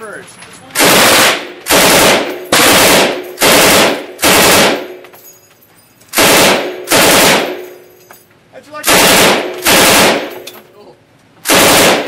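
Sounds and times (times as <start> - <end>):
machine gun firing bursts: 0.8 - 5.0, 6.2 - 7.6, 8.8 - 10.4, 11.4 - 12.0.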